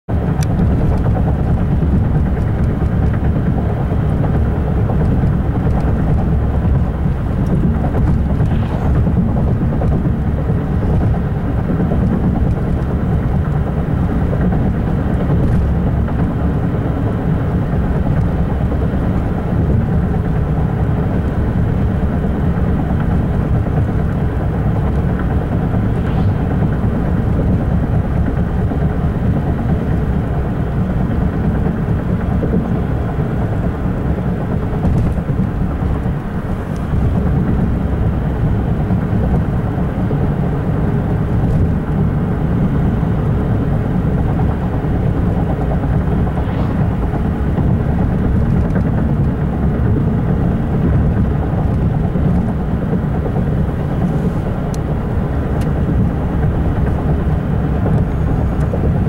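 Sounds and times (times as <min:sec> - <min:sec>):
freight train rumbling past: 0:00.1 - 0:59.0.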